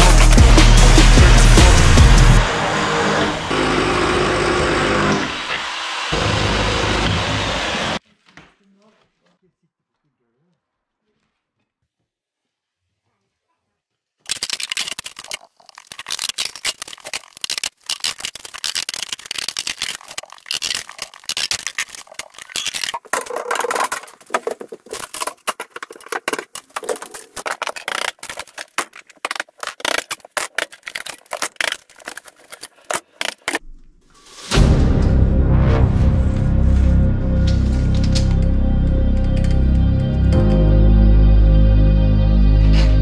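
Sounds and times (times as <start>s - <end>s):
music: 0.0s - 2.5s, 34.4s - 43.0s
boards torn with a crowbar: 14.3s - 33.6s.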